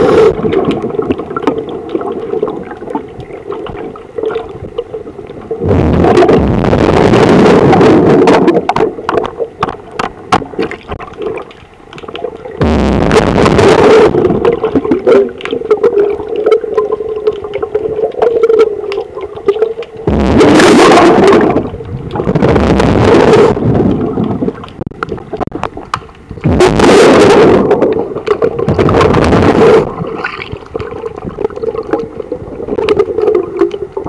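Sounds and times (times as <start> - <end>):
underwater bubbling rushes: 0.0 - 34.0
steady hum: 4.0 - 15.7, 19.9 - 32.8.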